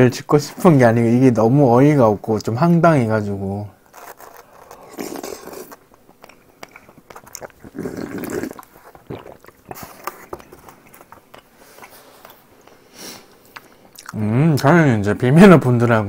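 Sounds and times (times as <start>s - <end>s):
chewing with wet mouth clicks: 4.2s - 12.4s, 13.4s - 14.2s
wet slurp from a bowl: 6.7s - 10.7s.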